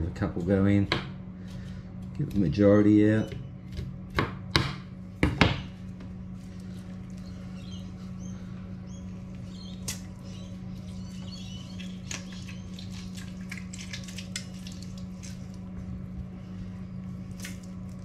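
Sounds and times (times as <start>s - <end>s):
steady low hum: 0.0s - 18.0s
lemon juice dripping: 9.7s - 15.6s.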